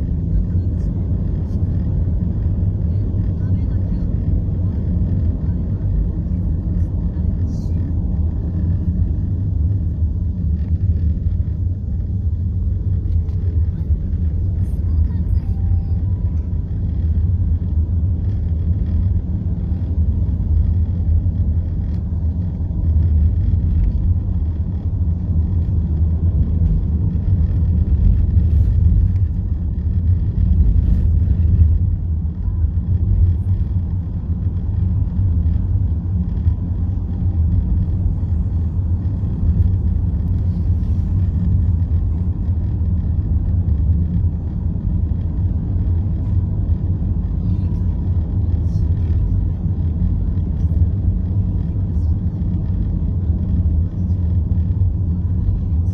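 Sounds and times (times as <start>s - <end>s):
car interior road noise: 0.0s - 55.9s.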